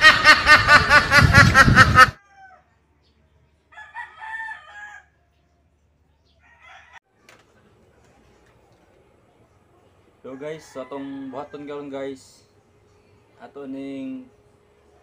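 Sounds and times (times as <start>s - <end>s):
rooster crowing: 2.2s - 2.8s, 3.7s - 5.3s, 6.4s - 7.0s, 10.3s - 12.0s.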